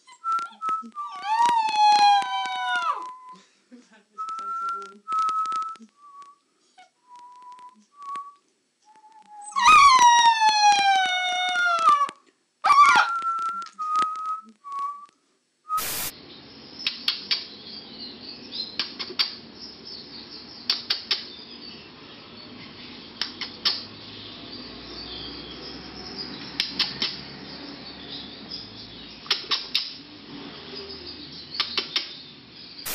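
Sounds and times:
puppy whining squeaks: 0.0s - 3.4s, 9.0s - 13.5s
puppy howling: 1.0s - 3.2s, 9.4s - 13.4s
sharp clicks: 4.2s - 6.4s, 26.6s - 27.2s
steady hiss: 14.4s - 17.7s.

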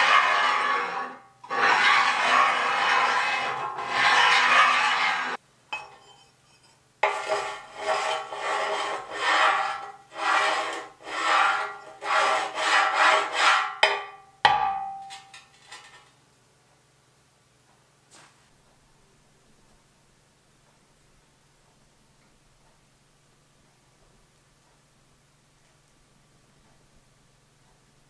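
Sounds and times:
steel scraping against steel: 0.0s - 5.4s, 6.0s - 13.9s
sharp metal clank: 13.8s - 15.4s.

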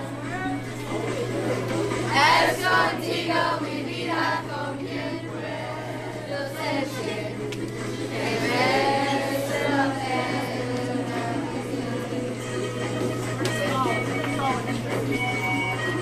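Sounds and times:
children singing as a choir: 2.1s - 12.4s.

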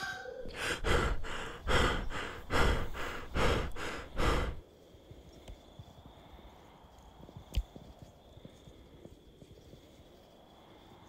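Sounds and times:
heavy breaths on microphone: 0.4s - 7.4s.

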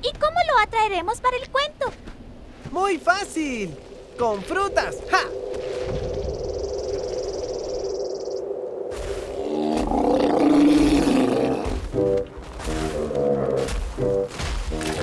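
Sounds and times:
cartoon animal growling roar: 9.3s - 11.8s
background music chord: 11.8s - 15.0s.

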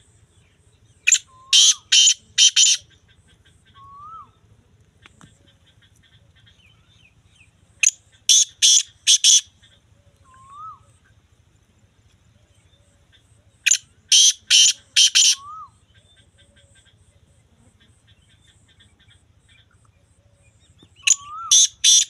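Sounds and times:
francolin calling harshly: 1.0s - 4.4s, 5.5s - 11.2s, 13.2s - 17.0s, 21.0s - 22.0s.

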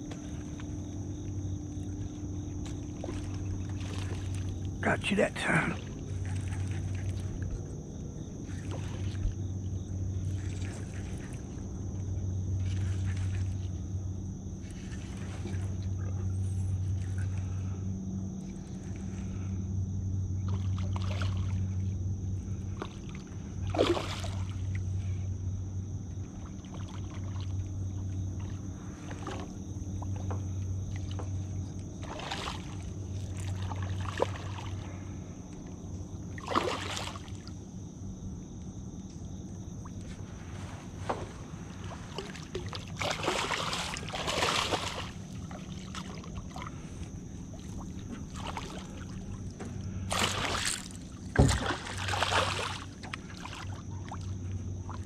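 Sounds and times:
low hum: 0.0s - 55.0s
fish splashing: 23.7s - 24.5s, 36.4s - 37.4s, 42.1s - 46.8s, 50.1s - 54.3s.

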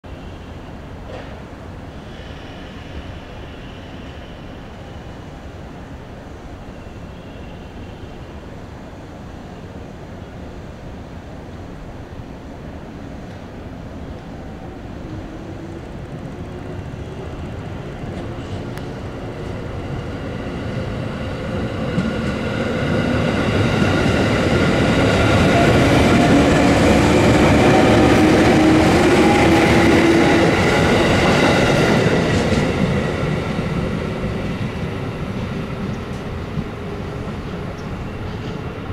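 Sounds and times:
train wheels on rails: 0.2s - 5.0s, 13.2s - 38.9s.

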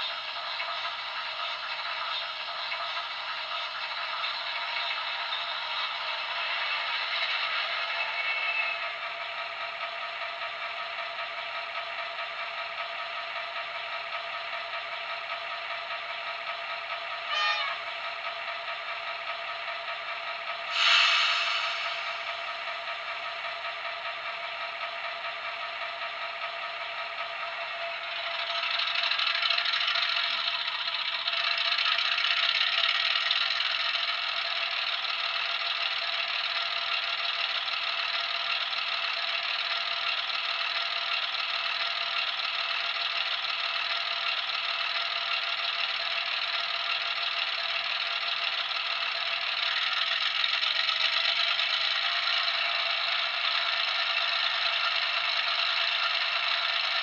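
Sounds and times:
thin diesel engine through small speaker: 0.0s - 57.0s.

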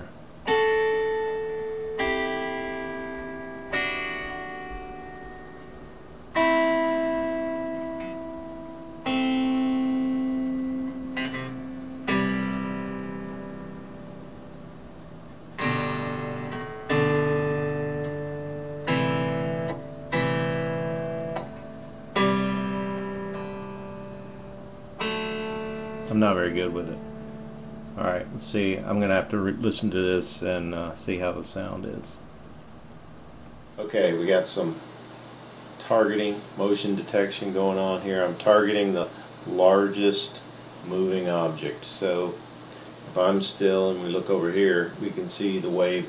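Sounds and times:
zither strummed in slow chords: 0.0s - 29.8s.

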